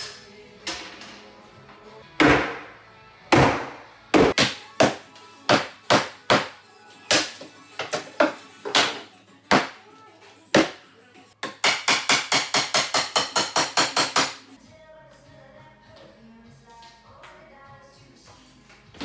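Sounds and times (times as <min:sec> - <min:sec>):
sledgehammer whacking cabinet: 0:02.2 - 0:02.7, 0:03.3 - 0:06.5.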